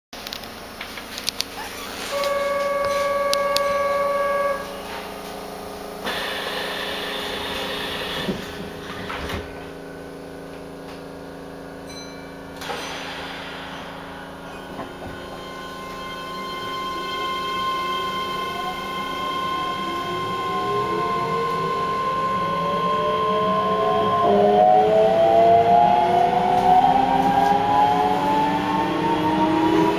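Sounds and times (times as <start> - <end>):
train car hum: 0.2 - 29.9
electric inverter tones: 1.5 - 6.2, 14.2 - 29.9
buzzer: 2.1 - 4.6.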